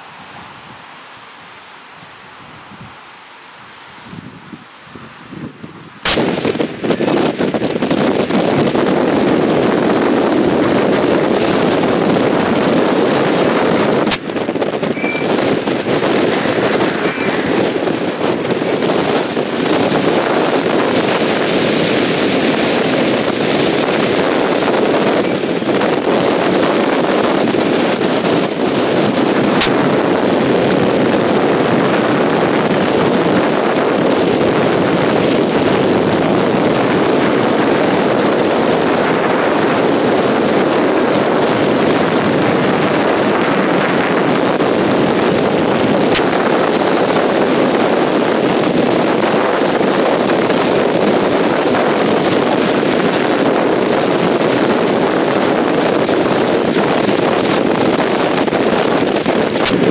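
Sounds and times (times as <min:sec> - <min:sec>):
strong gusty wind buffeting microphone: 0:00.0 - 0:59.9.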